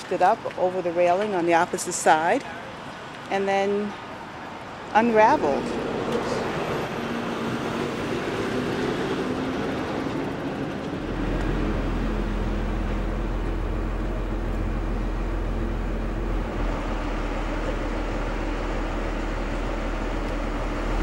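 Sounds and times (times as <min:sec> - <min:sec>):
truck engine running: 0:05.2 - 0:21.0
deep low rumble: 0:11.0 - 0:21.0.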